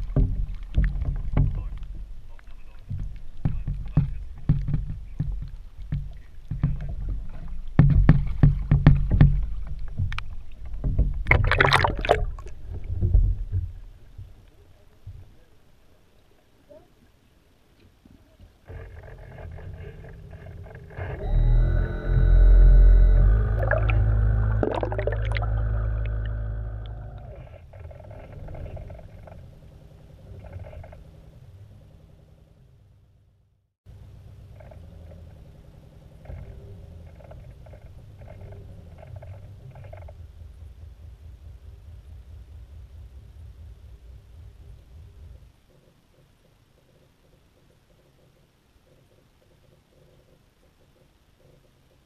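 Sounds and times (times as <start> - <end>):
muffled water sloshing against case: 0.0 - 15.6, 23.5 - 26.0
underwater motor whine: 19.9 - 27.4.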